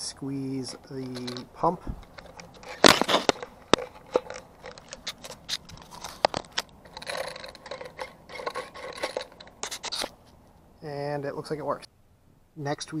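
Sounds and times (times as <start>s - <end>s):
scraping rustle: 0.6s - 10.4s
plastic clicks and rattles: 1.0s - 10.1s.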